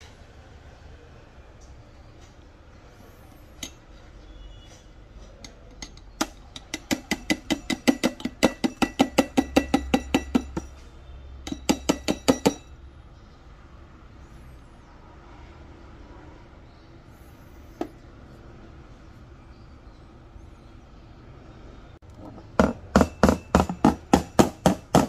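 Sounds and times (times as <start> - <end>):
metal tool clinking on portafilter: 5.2 - 10.8, 11.4 - 12.7.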